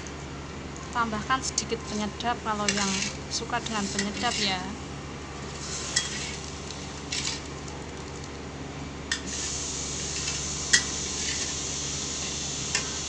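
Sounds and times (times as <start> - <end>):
steady hiss: 9.2 - 13.0.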